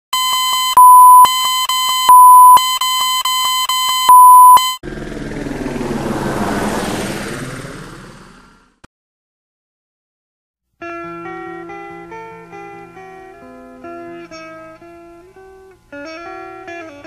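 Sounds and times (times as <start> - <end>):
electronic beeps: 0.2 - 4.8
rushing whoosh: 4.9 - 8.8.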